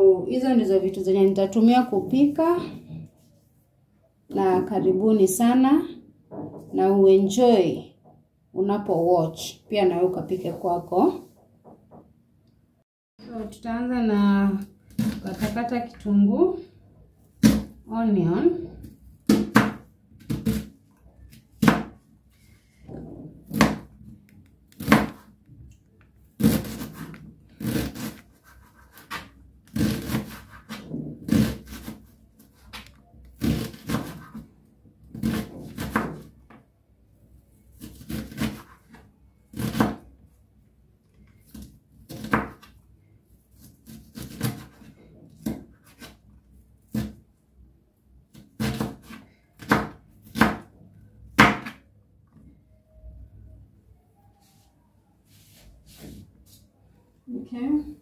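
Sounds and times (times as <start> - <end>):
knife chopping on cutting board: 19.2 - 20.7, 21.6 - 22.0, 23.5 - 23.9, 43.8 - 46.2, 48.3 - 50.7.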